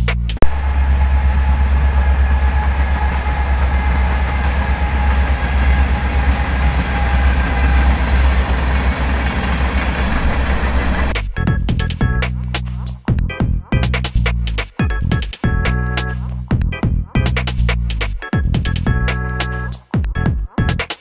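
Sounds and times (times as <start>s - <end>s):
train rumbling past: 0.4s - 11.5s.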